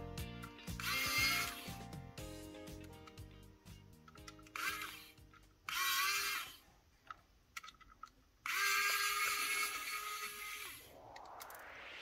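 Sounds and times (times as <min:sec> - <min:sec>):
small electric motor whirring: 0:04.5 - 0:06.6, 0:08.4 - 0:11.0.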